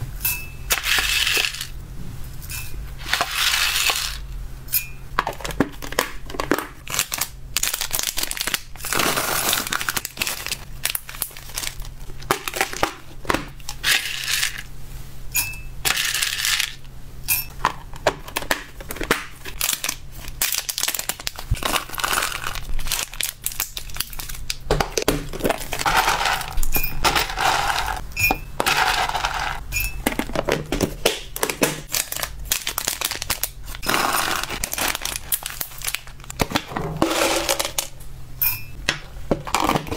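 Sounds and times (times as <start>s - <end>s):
plastic bags crinkling: 5.3s - 14.6s, 18.3s - 28.0s, 28.6s - 36.7s
treats rattling against glass jug: 25.4s - 30.6s.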